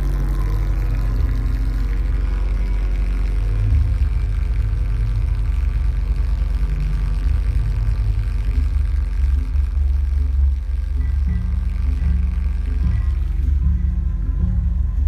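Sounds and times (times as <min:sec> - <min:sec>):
noise music through loudspeakers: 0:00.0 - 0:15.0.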